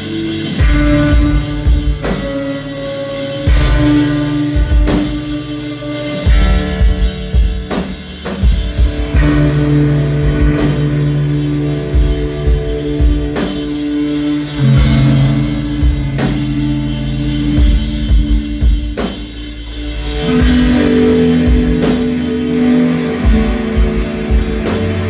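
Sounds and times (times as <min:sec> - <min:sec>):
drum kit heavy accents: 0:00.0 - 0:25.0
electric guitars and bass: 0:00.0 - 0:25.0.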